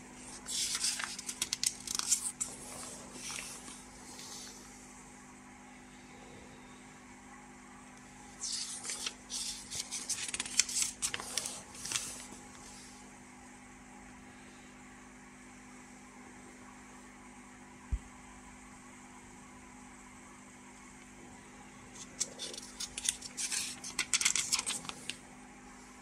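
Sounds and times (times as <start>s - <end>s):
steady low hum: 0.0s - 26.0s
paper rustling and crinkling: 0.2s - 4.6s, 8.4s - 12.8s, 22.0s - 25.2s.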